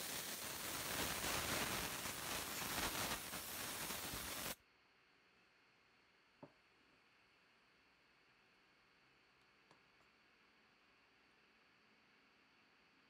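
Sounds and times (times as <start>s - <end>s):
compressed air spraying: 0.0s - 4.6s.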